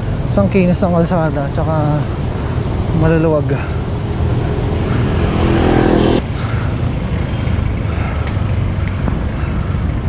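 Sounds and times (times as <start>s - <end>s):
wind rushing over microphone: 0.0s - 6.3s
road and traffic noise: 0.0s - 10.0s
vehicle engine hum: 0.0s - 10.0s.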